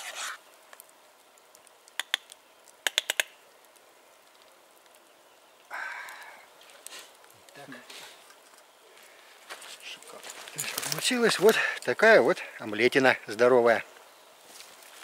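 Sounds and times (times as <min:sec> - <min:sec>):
metallic scrape: 0:00.0 - 0:00.4.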